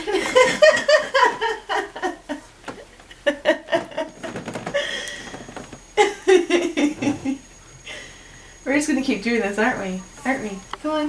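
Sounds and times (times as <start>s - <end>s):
woman chuckling: 0.0s - 8.1s
blanket rustling: 3.8s - 6.0s.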